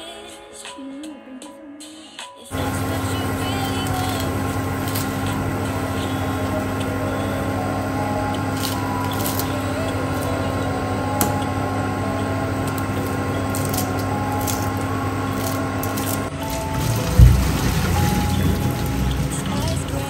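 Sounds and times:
steady hum: 2.5 - 20.0
greens splashing into water: 16.3 - 20.0.

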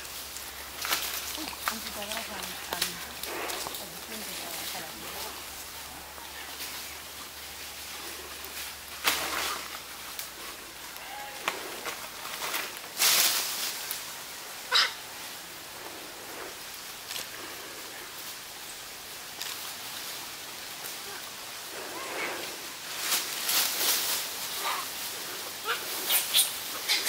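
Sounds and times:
macaques calling: 14.6 - 15.1, 24.1 - 27.0.

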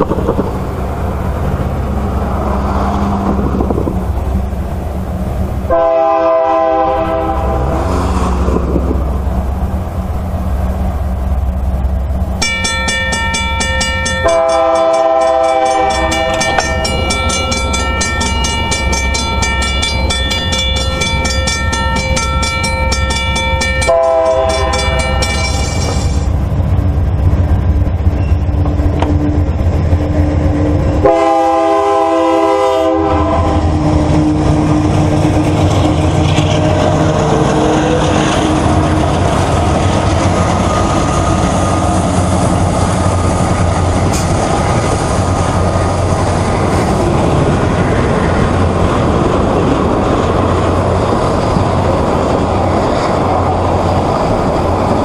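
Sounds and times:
locomotive rumble: 0.0 - 55.0
locomotive air horn blasts: 5.7 - 7.8, 14.2 - 16.8, 23.8 - 25.3, 31.0 - 34.8.

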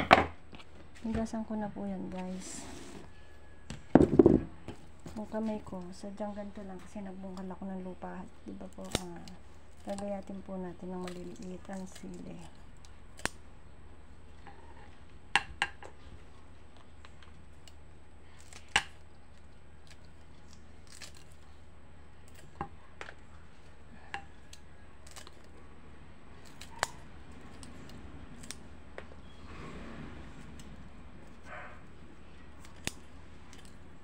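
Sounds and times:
low steady hum: 0.0 - 34.0
scissors snipping peppers: 5.0 - 13.4, 24.1 - 25.6, 26.4 - 28.6, 32.4 - 33.8.

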